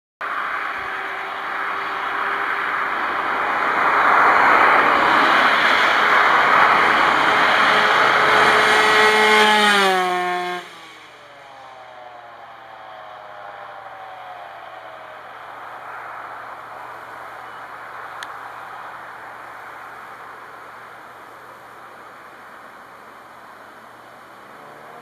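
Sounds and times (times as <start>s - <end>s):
distant engine: 0.2s - 25.0s
vehicle passing by: 0.3s - 25.0s.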